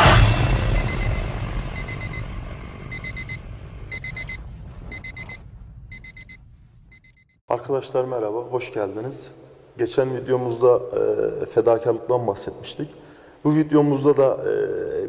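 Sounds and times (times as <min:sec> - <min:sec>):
loud rushing sound: 0:00.0 - 0:07.0
alarm clock beeping: 0:00.6 - 0:06.4, 0:07.0 - 0:07.4.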